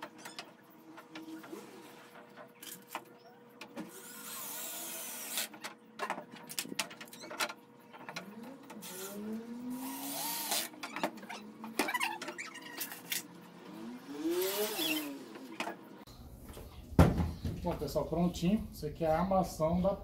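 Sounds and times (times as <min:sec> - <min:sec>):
electric drill driving screws: 0:03.9 - 0:05.5, 0:08.8 - 0:10.8, 0:14.1 - 0:15.3.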